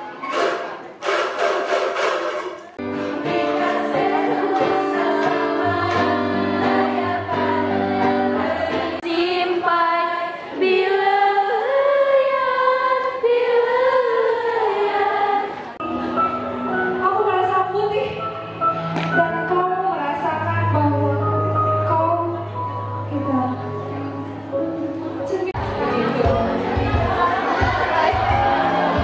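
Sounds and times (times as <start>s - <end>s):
women's choir singing: 2.4s - 16.0s, 25.5s - 29.0s.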